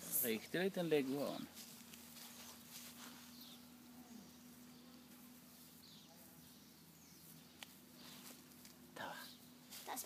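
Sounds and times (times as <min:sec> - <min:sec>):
faint steady hum: 0:00.0 - 0:10.0.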